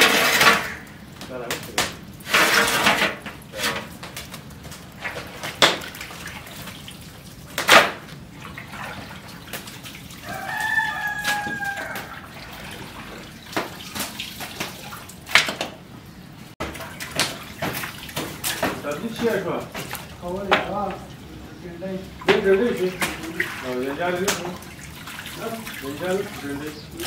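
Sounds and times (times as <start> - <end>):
meat slapping into metal pots: 0.0 - 15.8, 16.6 - 21.2, 22.0 - 27.0
rooster crowing: 10.2 - 12.4.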